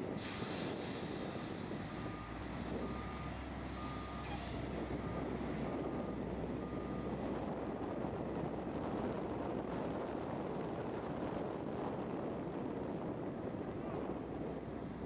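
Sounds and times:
diesel engines running: 0.0s - 15.0s
air hiss bursts: 0.2s - 1.6s.

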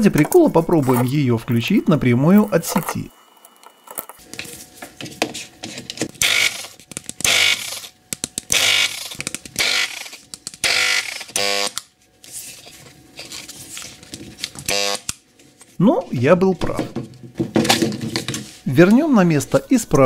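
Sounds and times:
angle grinder bursts: 6.2s - 7.9s, 8.5s - 11.8s.

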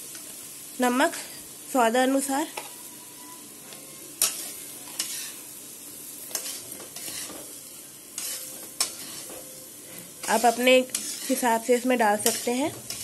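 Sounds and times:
spatula scraping metal pan: 4.2s - 5.4s, 6.3s - 7.6s, 8.2s - 13.0s.

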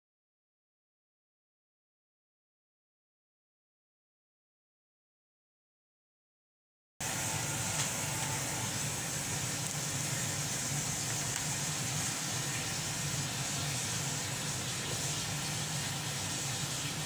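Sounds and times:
constant hiss: 7.0s - 17.0s
machine hum: 7.0s - 17.0s.

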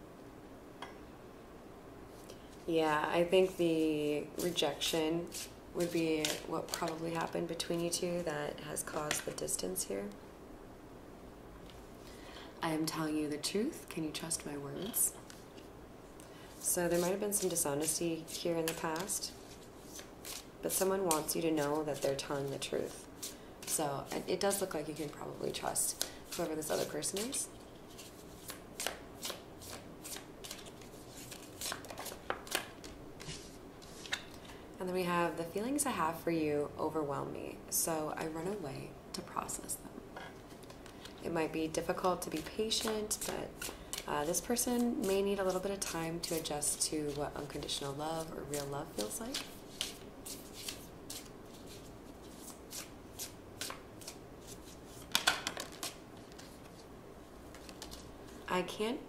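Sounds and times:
cards being shuffled: 5.2s - 7.3s, 16.6s - 34.5s, 41.8s - 56.9s, 57.5s - 58.4s.

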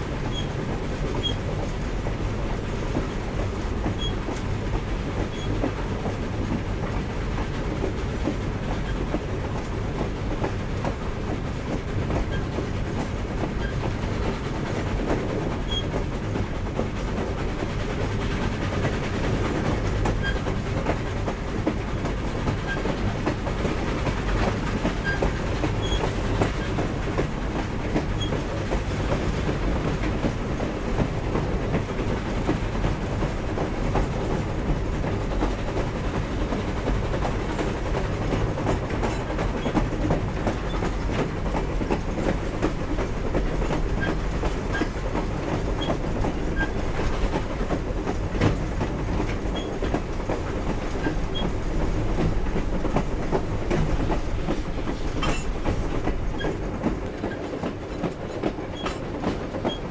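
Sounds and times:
train wheels rumbling on rails: 0.0s - 59.9s
clicks and clanks from cars: 31.0s - 59.9s.

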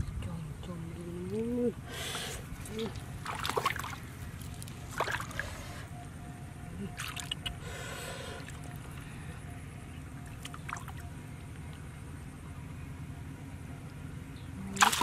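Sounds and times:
hands splashing in water: 3.2s - 5.4s, 14.8s - 15.0s.

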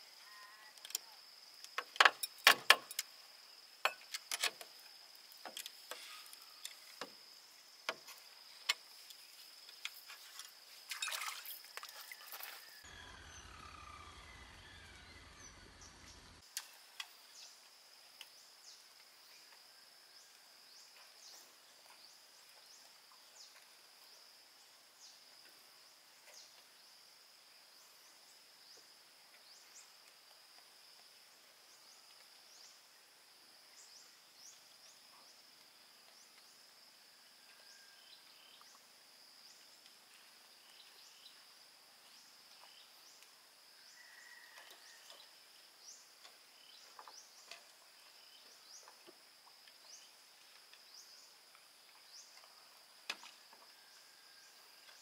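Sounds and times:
high insect drone: 0.0s - 15.6s.

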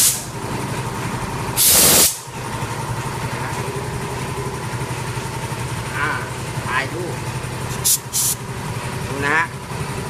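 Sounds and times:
compressed air hissing: 0.0s - 0.3s, 1.6s - 2.3s, 7.7s - 8.4s.

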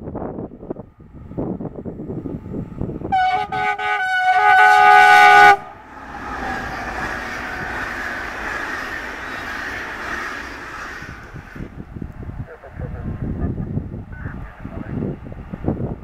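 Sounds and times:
locomotive horn: 3.1s - 7.6s
train wheels rolling on rails: 5.2s - 12.3s.

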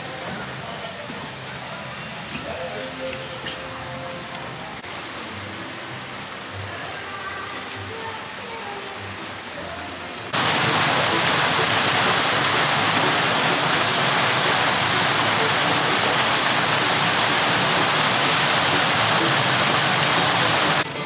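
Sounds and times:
rush of falling water: 4.8s - 21.0s.

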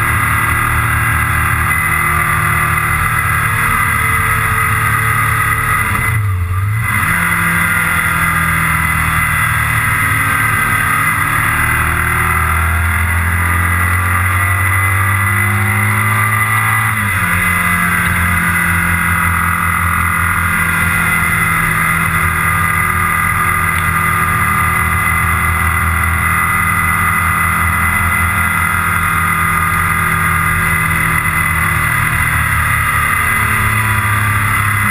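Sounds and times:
vehicle engine running: 0.0s - 34.9s.

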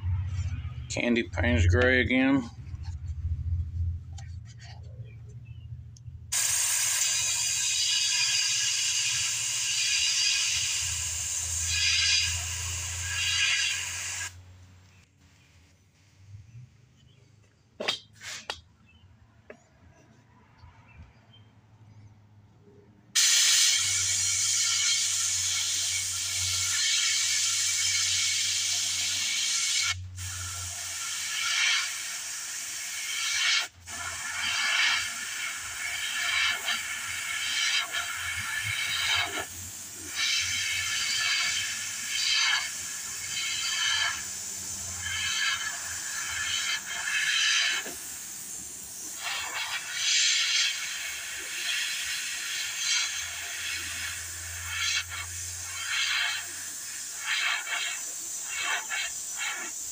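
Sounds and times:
airbrush spraying hiss: 6.3s - 14.4s, 23.2s - 59.9s.

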